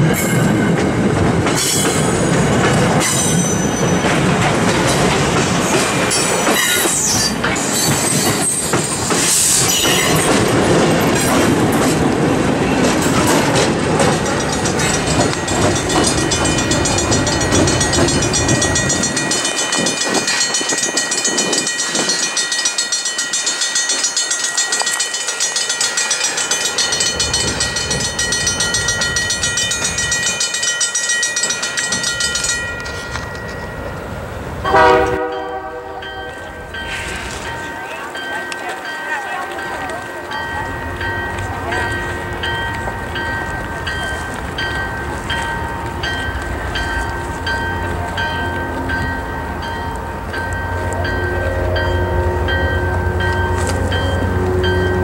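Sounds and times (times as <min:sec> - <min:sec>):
diesel locomotive rumble: 0:00.0 - 0:22.7, 0:31.3 - 0:55.0
train wheels clattering: 0:00.0 - 0:34.1
wheels squealing: 0:05.5 - 0:12.0.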